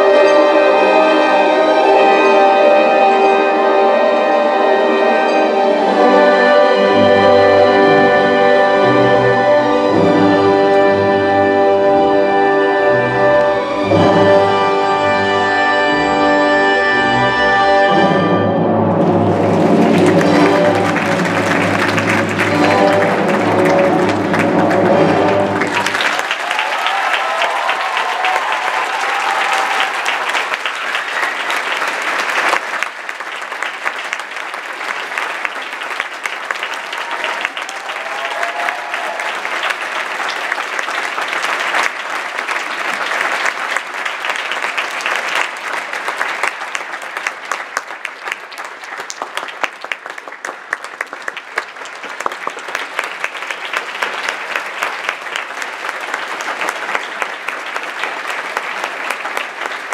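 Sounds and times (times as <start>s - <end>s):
audience applauding: 18.9s - 59.9s.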